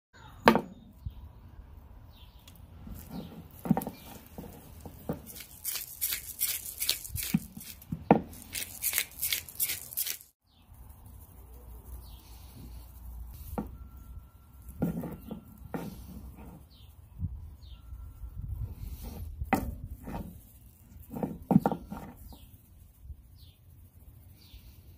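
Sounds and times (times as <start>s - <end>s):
spice grinder grinding: 2.9s - 10.4s.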